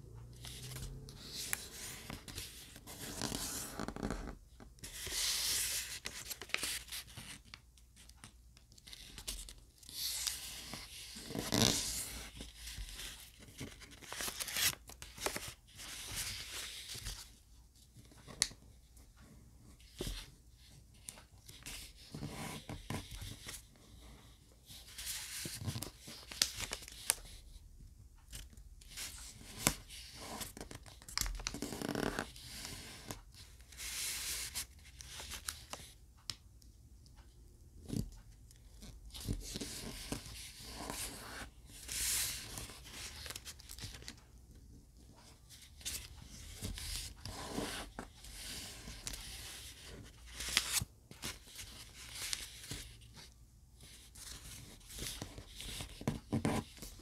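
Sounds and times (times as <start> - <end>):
paper rustling and crinkling: 4.8 - 7.5, 8.8 - 17.3.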